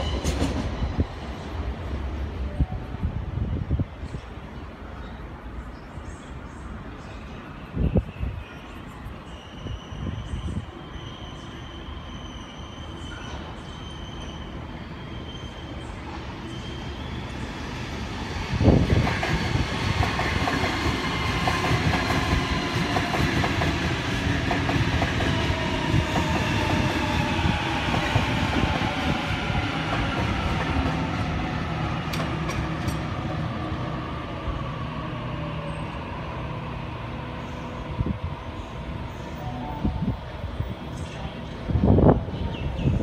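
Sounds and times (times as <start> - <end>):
train wheels clunk: 32.0 - 33.2
train wheels clattering over rails: 32.0 - 33.3.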